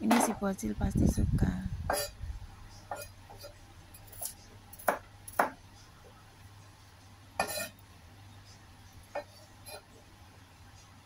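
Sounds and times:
low steady hum: 0.0 - 11.0
knife chopping on a wooden board: 4.2 - 5.6.

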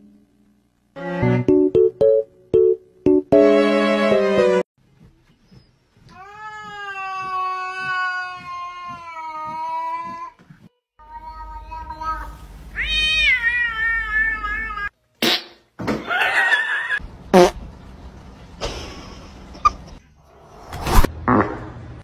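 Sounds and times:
cat meowing: 12.8 - 14.9.

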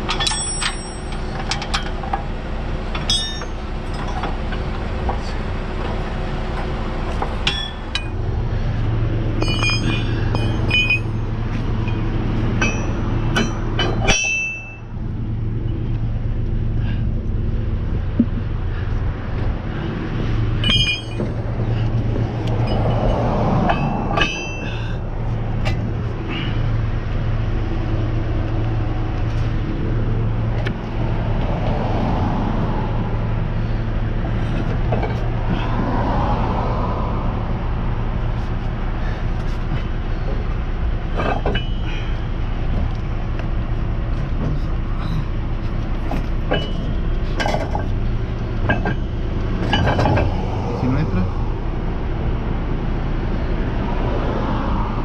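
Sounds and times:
metal clinks and clanks: 0.0 - 2.3, 2.9 - 5.4, 7.1 - 8.2, 9.3 - 15.0, 20.6 - 25.8, 41.0 - 43.0, 44.5 - 50.4
truck engine idling: 0.0 - 55.0.

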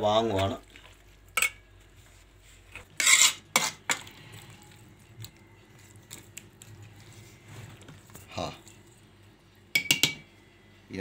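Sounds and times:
metal spoon scraping a steel pot: 2.8 - 4.0.

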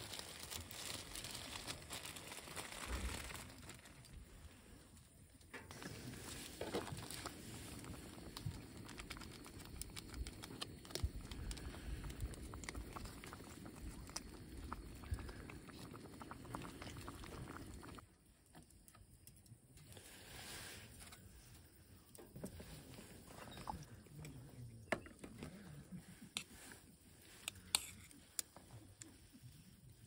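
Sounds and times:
water boiling with small pops: 5.3 - 19.9.

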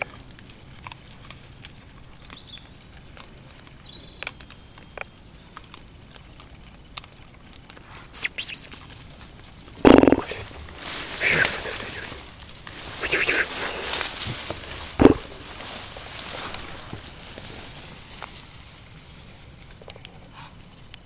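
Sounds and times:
boar crunching food: 0.0 - 21.0
high squeaks: 7.9 - 8.8.

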